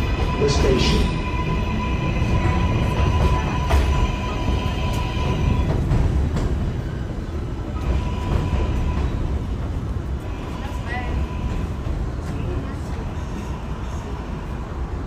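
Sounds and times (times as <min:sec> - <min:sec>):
subway train rumbling: 0:00.0 - 0:15.0.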